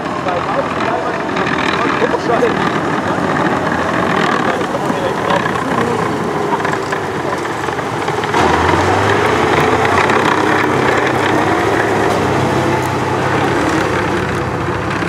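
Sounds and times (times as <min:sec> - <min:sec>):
tank engine rumbling: 0:00.0 - 0:15.0.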